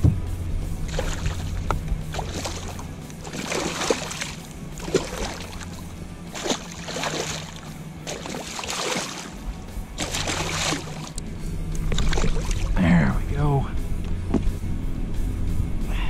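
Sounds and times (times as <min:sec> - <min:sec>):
fish thrashing and splashing: 0:00.8 - 0:11.2, 0:11.8 - 0:12.8.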